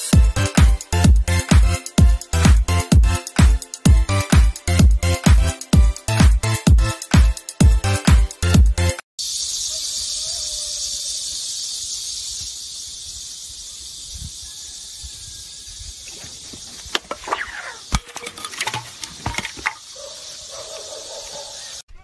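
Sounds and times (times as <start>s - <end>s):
high-pitched insect drone: 9.2s - 21.8s.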